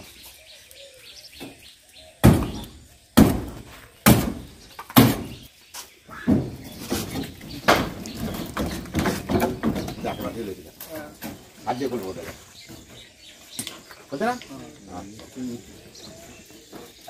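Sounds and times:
blade chopping wood: 2.2s - 5.4s.

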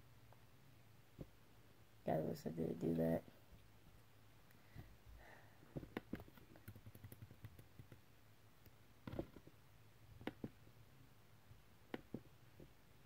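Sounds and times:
low steady hum: 0.0s - 13.0s
faint clicks and taps: 5.7s - 9.6s, 10.2s - 10.7s, 11.9s - 12.8s.

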